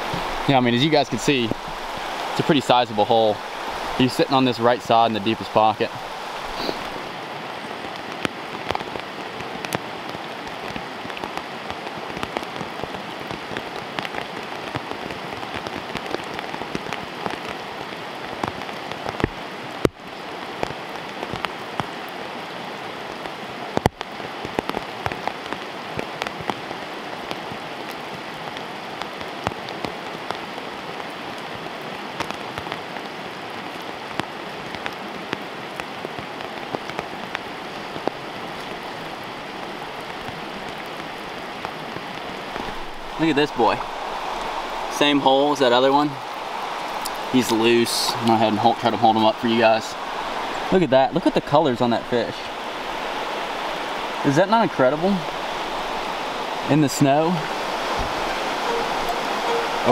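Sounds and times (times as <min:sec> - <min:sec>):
steady rain: 0:00.0 - 0:59.9
raindrop ticks: 0:07.8 - 0:22.2, 0:23.2 - 0:31.5, 0:32.2 - 0:56.2.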